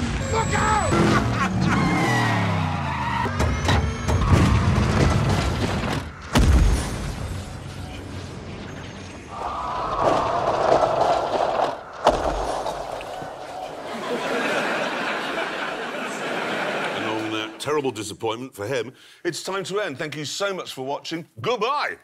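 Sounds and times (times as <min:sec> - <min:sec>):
audience laughing: 0:01.0 - 0:02.1, 0:13.7 - 0:17.6
sharp impacts: 0:03.4 - 0:08.4, 0:09.4 - 0:13.6
explosion boom: 0:04.2 - 0:07.8.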